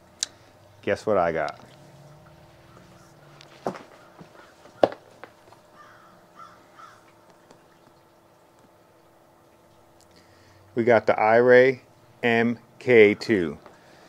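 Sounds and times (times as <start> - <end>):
knocks and handling noises: 2.7 - 5.7
crow cawing: 3.9 - 5.0, 5.7 - 7.1.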